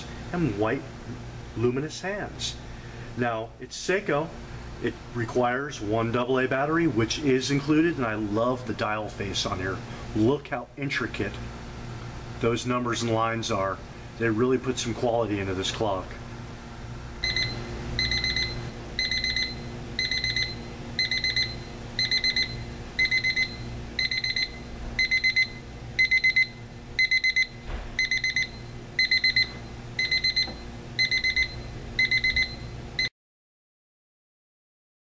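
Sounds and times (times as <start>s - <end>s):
low steady hum: 0.0s - 33.1s
alarm clock beeping: 17.2s - 33.1s.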